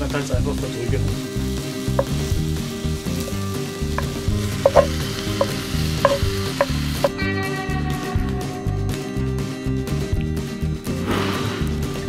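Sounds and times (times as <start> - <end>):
meat sizzling in a pot: 0.0 - 7.2
wooden spatula scraping and knocking: 3.2 - 7.1.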